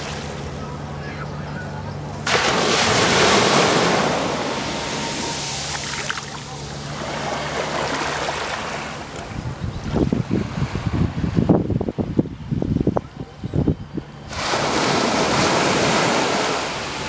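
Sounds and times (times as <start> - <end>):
surf washing over sand: 2.2 - 11.7, 14.3 - 17.0
wind buffeting microphone: 9.2 - 16.4.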